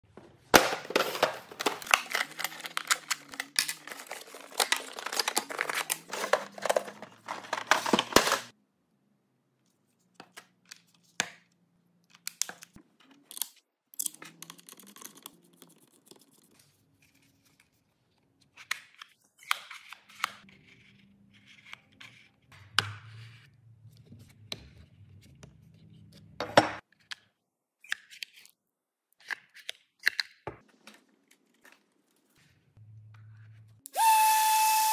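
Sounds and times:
packaging rustling and tearing: 0.8 - 8.5.

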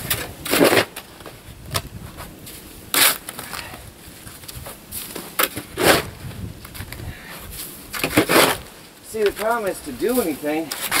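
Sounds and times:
snow shovel scraping snow: 4.7 - 6.3, 7.2 - 11.0.

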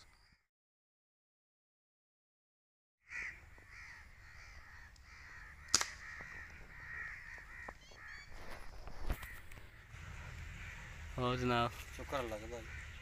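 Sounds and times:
birds calling: 3.1 - 13.0
air rifle shot: 5.6 - 6.3.

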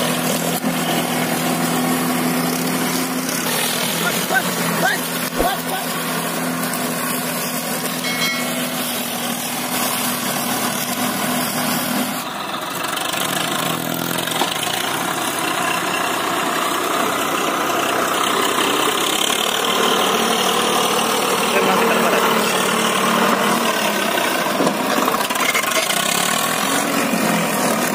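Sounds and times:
tractor diesel engine running: 0.0 - 27.9.

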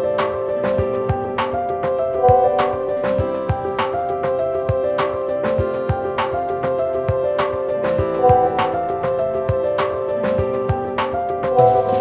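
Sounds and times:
light melody of held notes: 0.0 - 12.0
low thumping beat: 2.2 - 4.9, 8.0 - 9.8.

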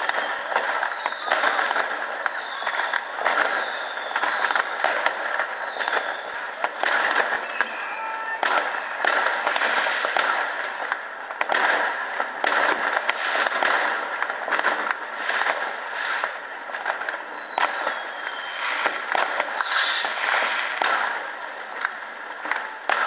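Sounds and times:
firework whistle: 0.0 - 10.4, 14.8 - 21.4
fireworks crackling and banging: 0.0 - 23.0.

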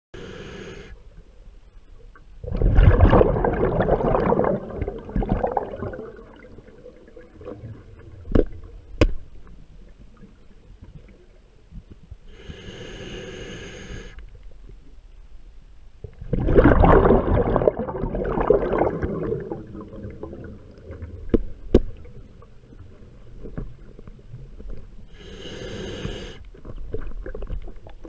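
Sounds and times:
regulator inhale hiss: 0.2 - 1.0, 12.3 - 14.2, 25.1 - 26.5
exhaled bubbles rushing: 2.4 - 8.2, 16.2 - 21.2.

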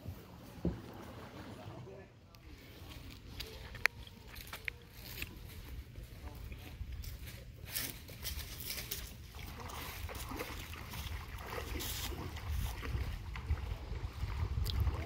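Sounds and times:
faint distant voices: 0.6 - 11.6
feet splashing in shallow water: 7.0 - 15.0
wind rumble on microphone: 9.9 - 15.0.

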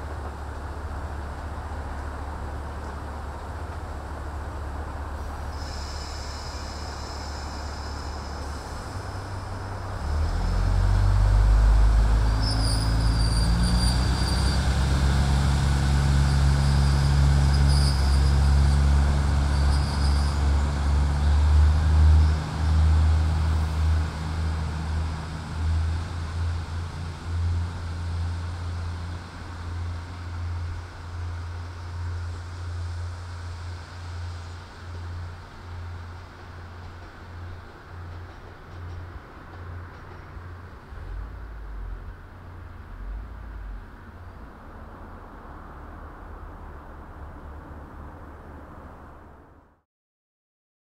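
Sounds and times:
diesel railcar engine: 0.0 - 49.6
brief high squeals: 5.5 - 8.8, 12.2 - 14.8, 16.6 - 18.7.

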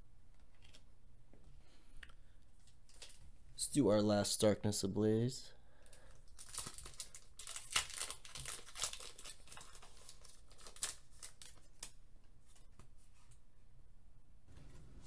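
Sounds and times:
foil pack crinkling and tearing: 5.9 - 12.0.

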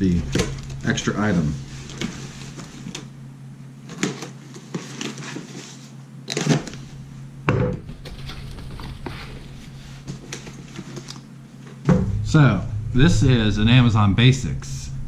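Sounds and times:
cardboard scraping and rustling: 0.0 - 3.1, 3.8 - 7.0, 7.8 - 11.2
steady low hum: 0.0 - 15.0.

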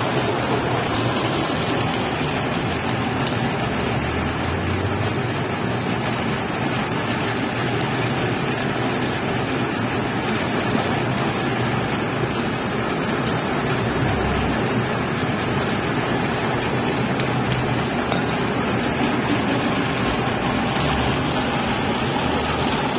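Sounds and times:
street traffic din: 0.0 - 22.9.

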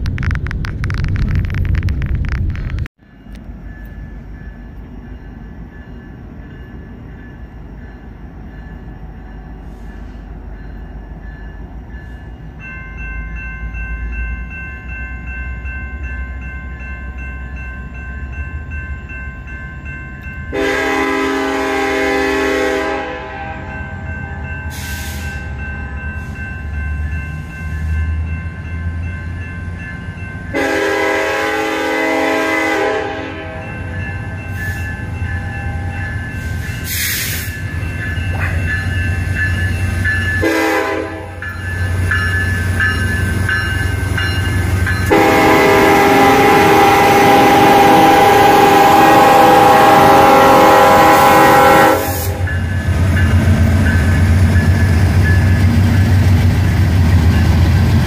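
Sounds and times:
diesel train rumbling: 0.0 - 58.0
crossing warning bell ringing: 3.0 - 58.0
locomotive horn blasts: 20.5 - 23.7, 30.5 - 33.7, 40.4 - 41.4, 45.1 - 52.5.

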